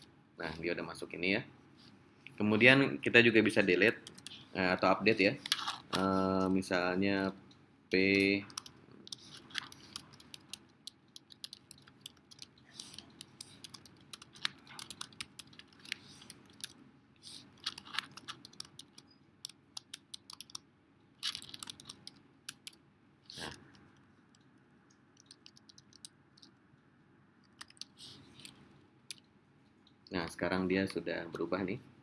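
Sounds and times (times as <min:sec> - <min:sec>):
computer keyboard typing: 0:03.9 - 0:04.3, 0:08.0 - 0:16.8, 0:17.5 - 0:22.8, 0:25.2 - 0:26.5, 0:27.5 - 0:29.2.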